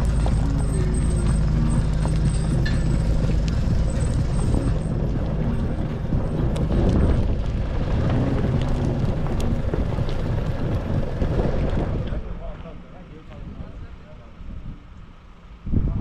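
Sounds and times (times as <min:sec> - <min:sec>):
sharp ticks: 0:00.0 - 0:12.2
truck engine and tyre noise: 0:00.0 - 0:16.0.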